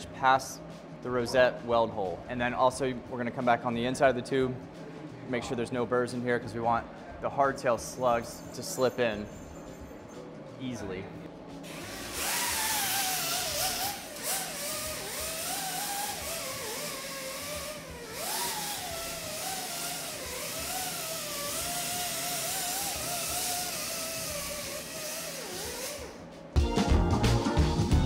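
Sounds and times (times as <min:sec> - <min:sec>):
pneumatic die grinder whining: 0:11.7 - 0:26.2.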